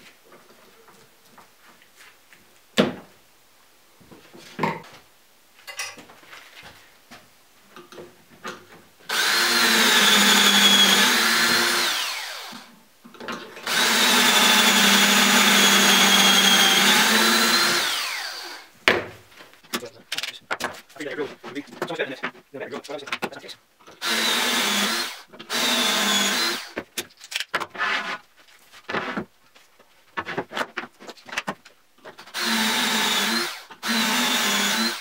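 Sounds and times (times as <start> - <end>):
cordless drill boring into wood: 9.1 - 12.7, 13.6 - 18.7, 24.0 - 26.8, 32.3 - 35.0.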